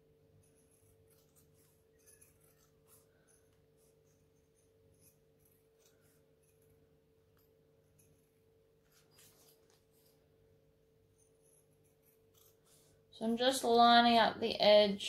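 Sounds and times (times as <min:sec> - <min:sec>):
scissors snipping and scraping: 0:00.4 - 0:10.2, 0:11.2 - 0:13.0.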